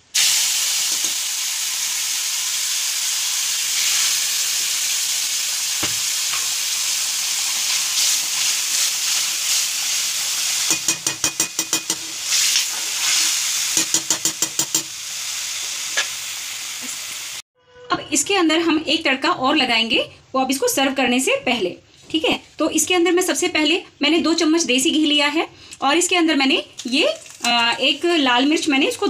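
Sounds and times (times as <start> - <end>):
liquid sizzling in hot oil: 0.0 - 17.4.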